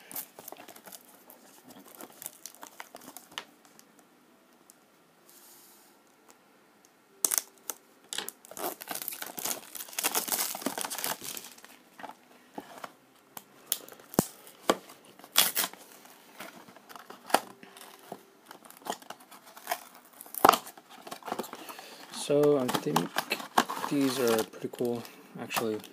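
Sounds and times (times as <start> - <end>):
cardboard and wrapper rustling: 0.0 - 3.8, 8.4 - 13.0, 13.8 - 25.9.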